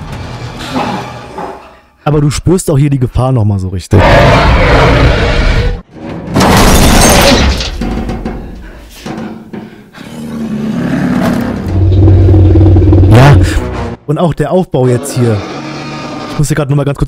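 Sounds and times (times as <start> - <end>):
loud crashing and breaking: 6.1 - 9.2
tense music: 10.0 - 14.1.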